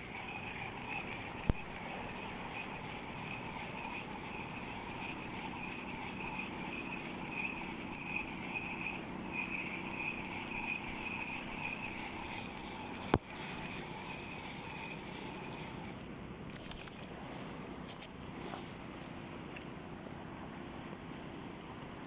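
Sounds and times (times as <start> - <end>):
spinning reel whirring: 0.0 - 17.2
low steady hum: 0.0 - 22.0.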